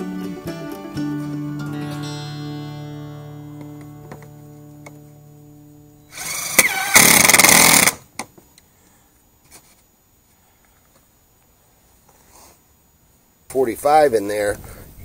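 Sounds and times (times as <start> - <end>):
cordless power tool whining: 6.1 - 8.0.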